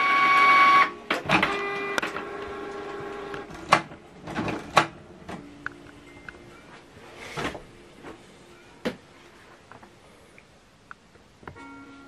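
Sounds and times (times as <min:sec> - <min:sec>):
printer motors whining: 0:00.0 - 0:05.4.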